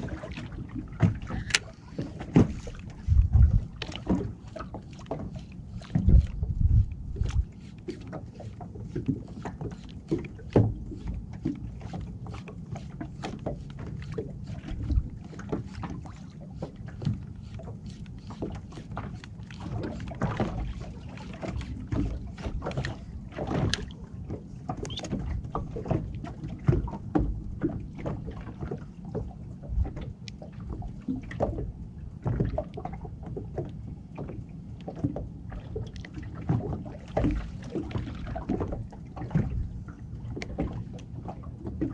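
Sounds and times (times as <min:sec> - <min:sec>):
gear knocking aboard: 0:00.0 - 0:28.9
low boat rumble: 0:00.0 - 0:41.9
water slapping hull: 0:00.0 - 0:41.9.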